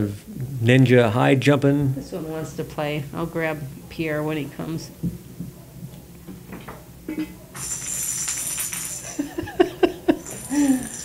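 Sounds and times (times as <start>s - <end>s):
bell in toy ball jingling: 7.6s - 11.0s.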